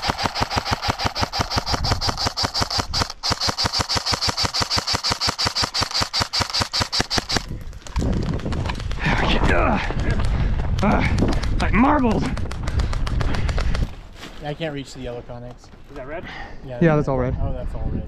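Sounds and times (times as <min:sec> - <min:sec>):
airsoft gun firing rapid shots: 0:00.0 - 0:09.0, 0:11.1 - 0:13.8.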